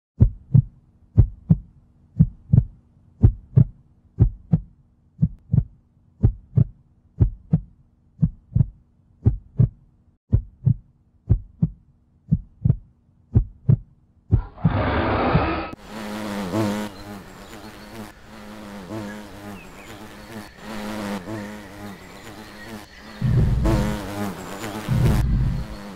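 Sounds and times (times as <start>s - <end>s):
heartbeat thumps: 0.2s - 14.8s, 23.2s - 24.1s, 24.8s - 25.8s.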